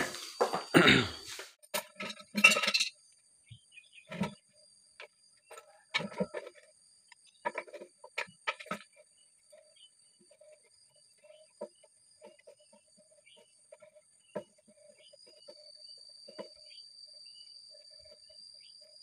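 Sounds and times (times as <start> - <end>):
metal tools clicking and knocking: 1.7 - 3.0.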